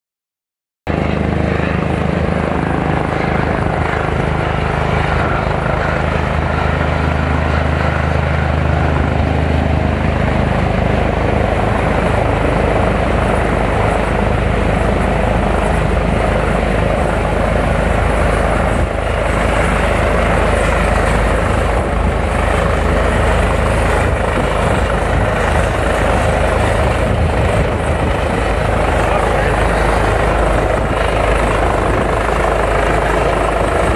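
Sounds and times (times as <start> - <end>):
helicopter rotor and engine drone: 0.9 - 33.9.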